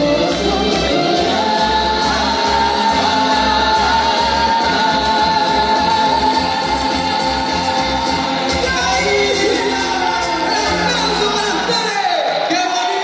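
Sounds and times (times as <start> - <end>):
live dance band with singing: 0.0 - 13.0.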